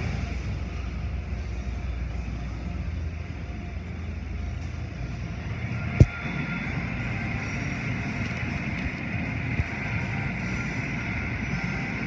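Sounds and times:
car wash rumble: 0.0s - 12.0s.

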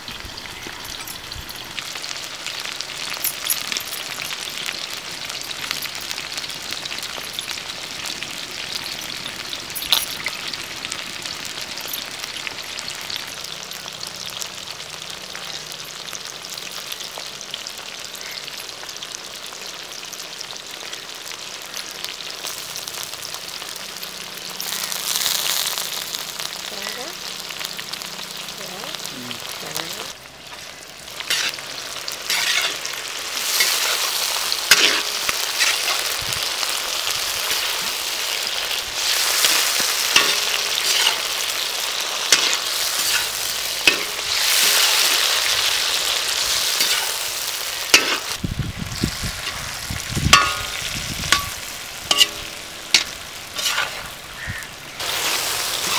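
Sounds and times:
vegetables sizzling in hot oil: 0.0s - 55.9s
metal spatula scraping pan: 31.2s - 31.6s, 32.3s - 36.0s, 39.1s - 41.3s, 46.8s - 47.2s, 47.9s - 48.4s, 50.3s - 54.1s.

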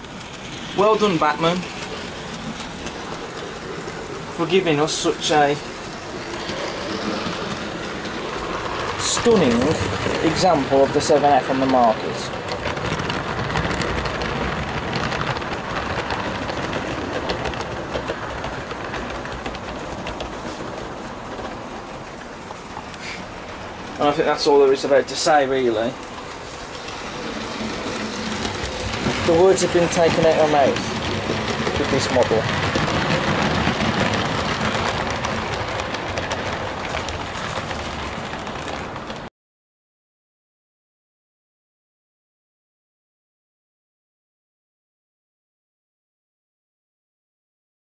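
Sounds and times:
model train wheels clicking: 0.0s - 39.3s.

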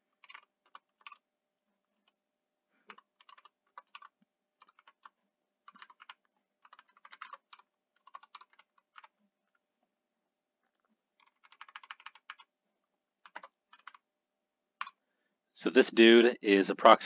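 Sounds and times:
typing on computer keyboard: 0.0s - 1.2s, 2.9s - 9.2s, 11.2s - 12.5s, 13.2s - 14.0s.

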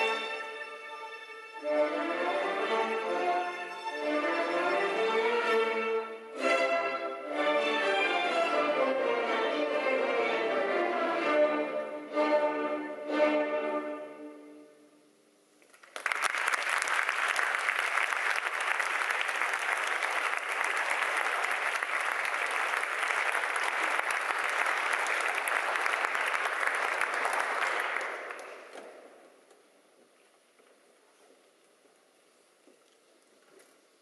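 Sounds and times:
audience applause: 15.7s - 28.8s.

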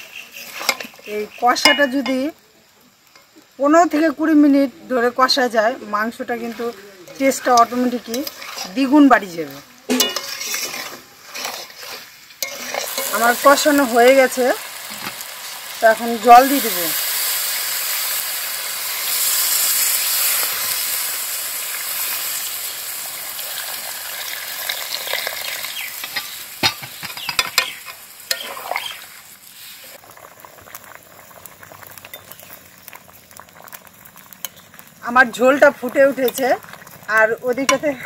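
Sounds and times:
curry sizzling in a pan: 0.0s - 38.0s
metal spatula knocking pan: 9.9s - 10.5s, 26.0s - 28.5s
gravy bubbling: 30.0s - 37.2s.

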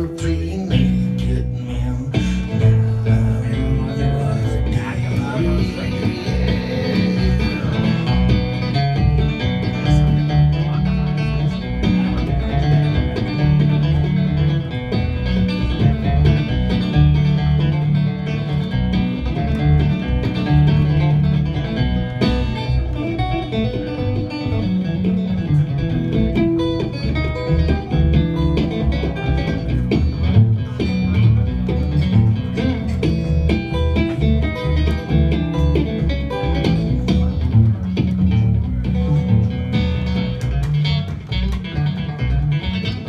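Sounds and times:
plucked double bass: 0.0s - 43.0s
strummed acoustic guitar: 0.0s - 43.0s.

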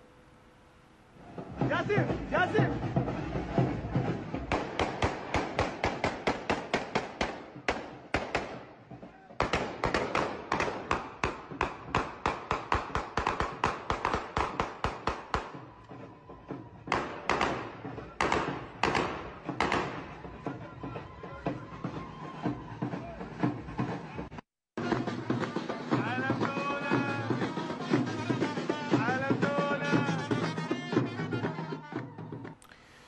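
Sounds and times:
rapid rifle gunfire: 4.5s - 8.7s, 9.4s - 15.6s, 16.9s - 20.0s.

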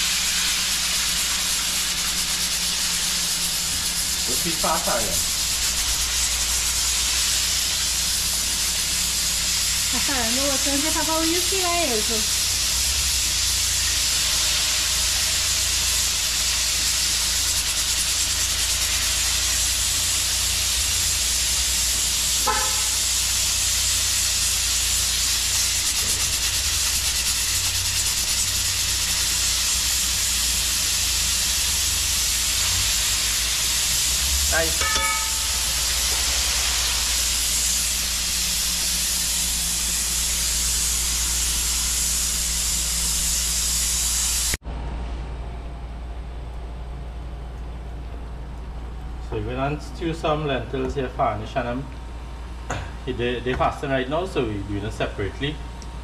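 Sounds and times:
fish sizzling in hot oil: 0.0s - 44.6s.

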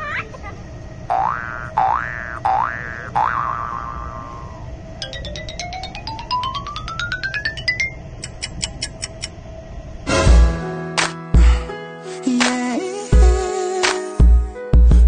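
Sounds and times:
low steady rumble: 0.0s - 10.7s
rising xylophone-like notes: 5.0s - 9.2s
high ticks: 5.0s - 9.4s.

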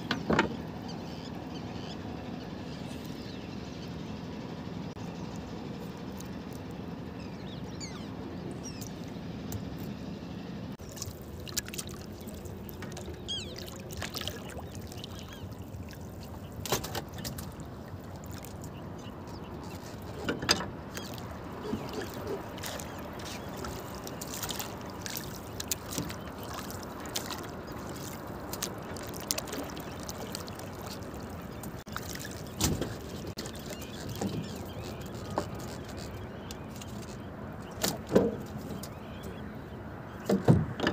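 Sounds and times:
water washing: 10.8s - 36.2s
sharp knocks on boat: 32.6s - 33.0s, 37.8s - 39.0s, 40.2s - 40.9s.

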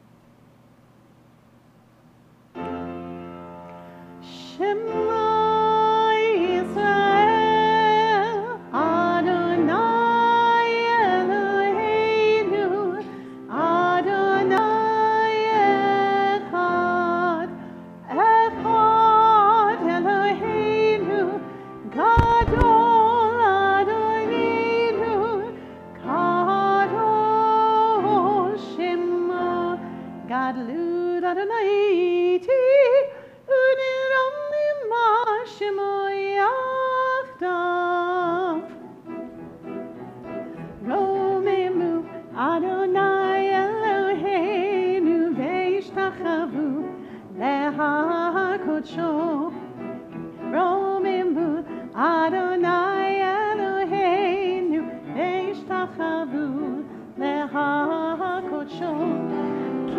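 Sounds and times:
soft sustained accompaniment: 2.6s - 59.9s.

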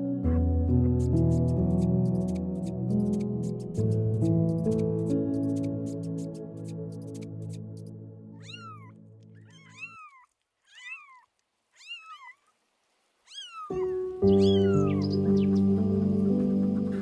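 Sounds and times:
kitten meowing: 8.4s - 12.4s, 13.3s - 15.1s.

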